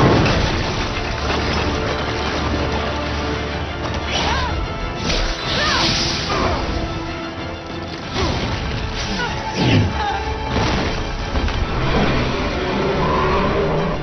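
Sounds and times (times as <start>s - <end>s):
smashes and hits: 0.0s - 4.3s
dramatic music score: 0.0s - 14.0s.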